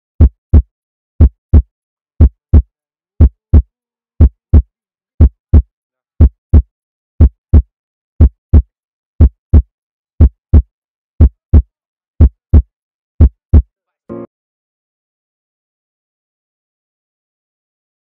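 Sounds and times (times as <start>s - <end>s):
heartbeat thumps: 0.2s - 13.7s.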